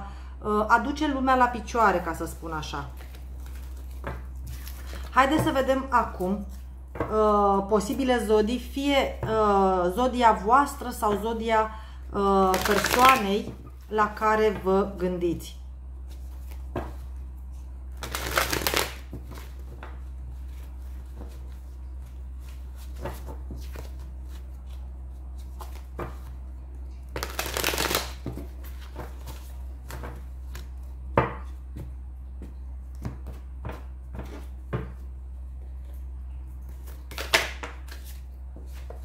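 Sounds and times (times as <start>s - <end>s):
cards being shuffled: 2.9s - 5.2s, 12.5s - 13.4s, 18.0s - 26.3s, 27.0s - 30.8s, 36.7s - 39.0s.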